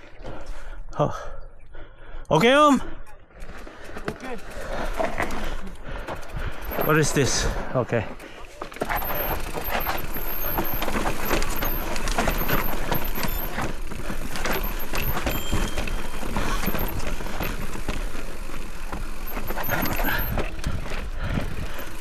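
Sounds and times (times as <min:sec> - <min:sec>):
bike rattling and knocking: 0:03.3 - 0:22.0
tyres crunching over rocks: 0:08.0 - 0:22.0.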